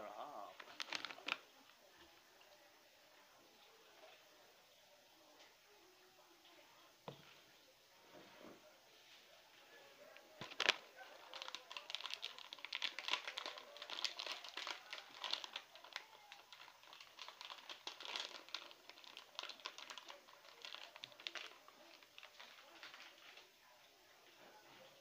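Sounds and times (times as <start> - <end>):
packaging crinkling: 0.5 - 1.4, 10.4 - 23.4.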